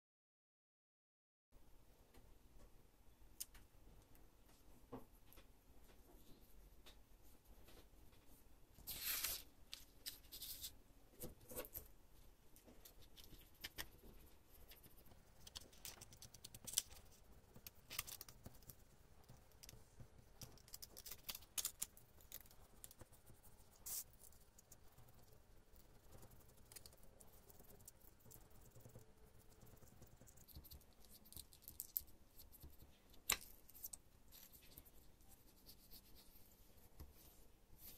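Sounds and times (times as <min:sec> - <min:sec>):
paper rustling: 0:08.8 - 0:10.7.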